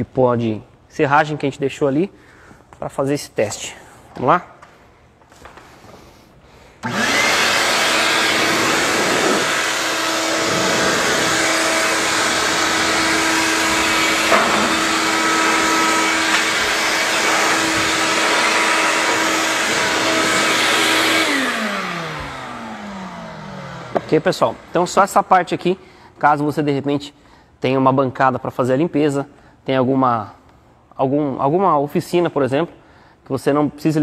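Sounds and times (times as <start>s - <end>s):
blower motor whining: 6.8s - 24.8s.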